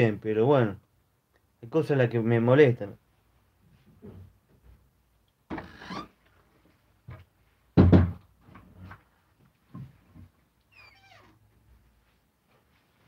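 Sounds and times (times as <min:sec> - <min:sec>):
knocks and bumps: 0:07.1 - 0:08.3.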